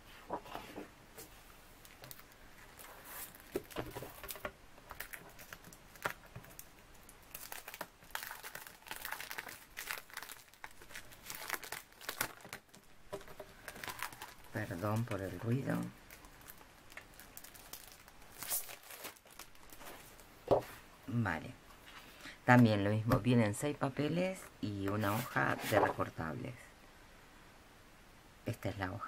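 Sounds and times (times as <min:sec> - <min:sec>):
plastic wrapper crinkling: 0:01.8 - 0:20.3.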